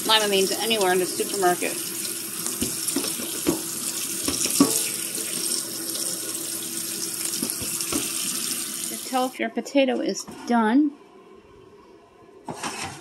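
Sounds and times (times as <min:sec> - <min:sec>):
tap water splashing: 0:02.0 - 0:06.0, 0:07.2 - 0:08.6.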